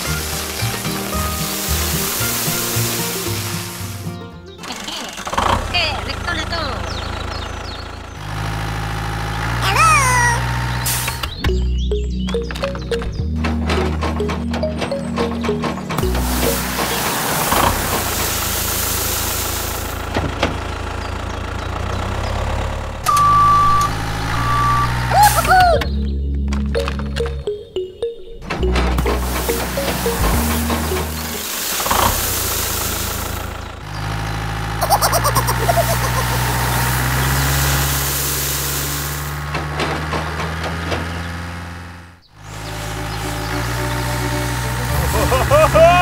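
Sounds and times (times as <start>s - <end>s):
granules pouring: 0.0s - 4.0s, 16.0s - 20.0s, 29.0s - 33.5s, 34.8s - 39.5s
tractor engine running: 0.0s - 46.0s
high beep: 23.1s - 25.1s
short warbling tones: 26.8s - 32.8s, 34.8s - 37.0s.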